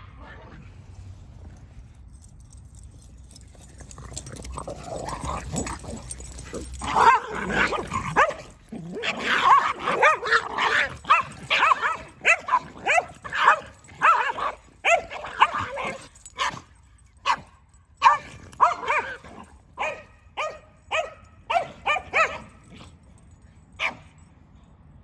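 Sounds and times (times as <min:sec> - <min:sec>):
dogs barking: 0:03.3 - 0:22.9, 0:23.8 - 0:24.2.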